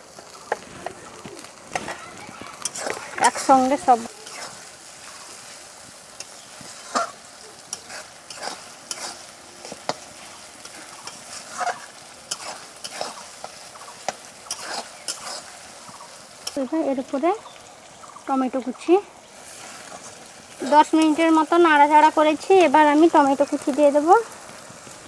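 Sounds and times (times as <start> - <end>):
food sizzling in hot oil: 0.0 - 25.0
metal spatula scraping pan: 1.7 - 5.3, 6.2 - 15.7.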